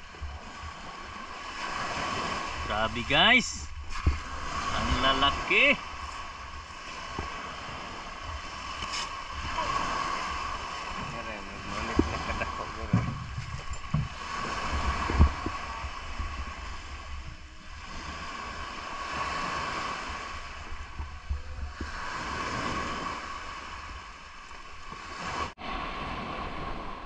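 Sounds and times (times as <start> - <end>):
surf on shingle beach: 0.0 - 27.0
wind buffeting microphone: 3.6 - 27.0.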